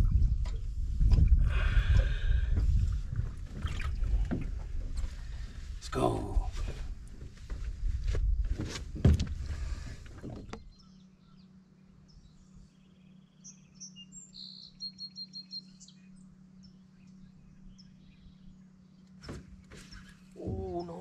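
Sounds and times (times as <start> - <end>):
bird chirping: 10.6 - 21.0.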